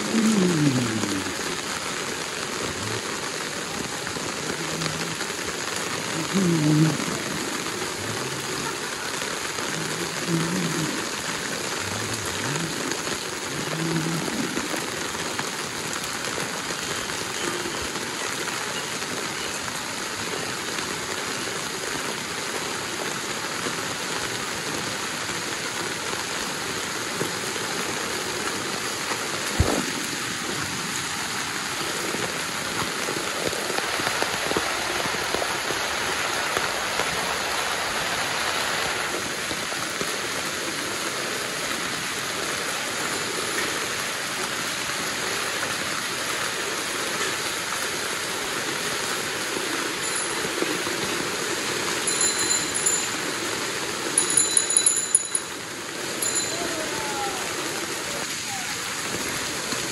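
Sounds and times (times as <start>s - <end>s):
faint voices: 0.0s - 1.7s, 2.5s - 14.8s, 56.2s - 59.2s
heavy rain pouring: 0.0s - 59.9s.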